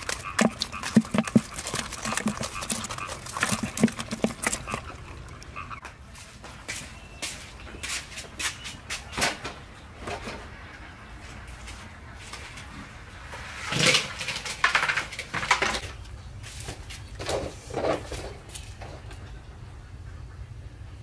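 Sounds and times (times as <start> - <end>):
plastic bucket knocking: 0.0 - 5.0
water splashing into colander: 0.0 - 5.7
fish slapping and clattering: 0.0 - 5.8, 13.7 - 16.0.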